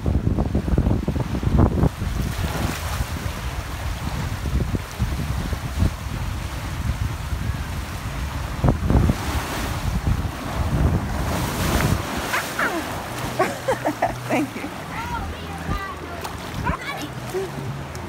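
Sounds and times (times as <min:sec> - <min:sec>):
wind buffeting the microphone: 0:00.0 - 0:18.0.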